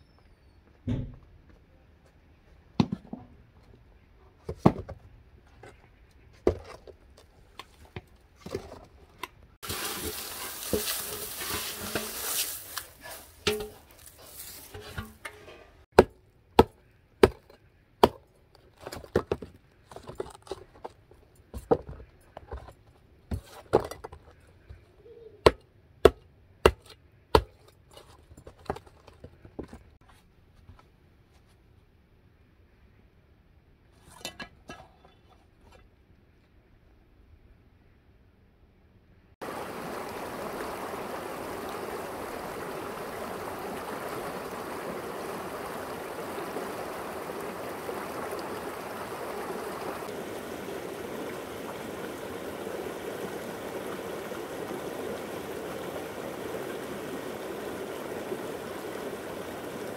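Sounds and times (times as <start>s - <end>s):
hiss: 9.6s - 13.4s.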